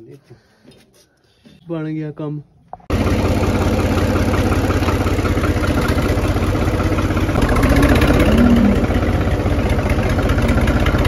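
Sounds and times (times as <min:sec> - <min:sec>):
tractor diesel engine idling: 0:02.9 - 0:11.0.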